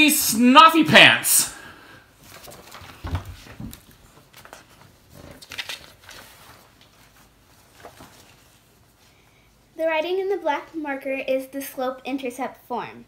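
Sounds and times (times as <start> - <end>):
paper rustling: 2.2 - 9.0.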